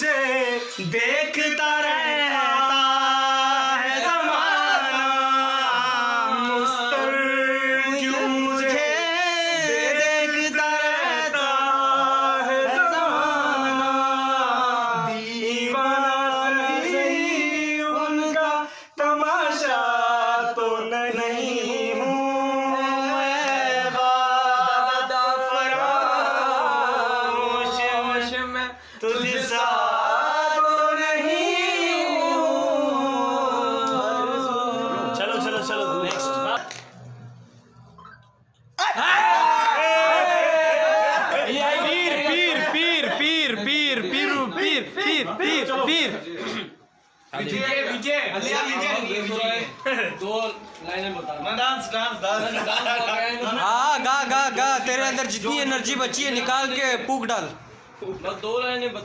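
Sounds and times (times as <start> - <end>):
men singing without instruments: 0.0 - 36.8.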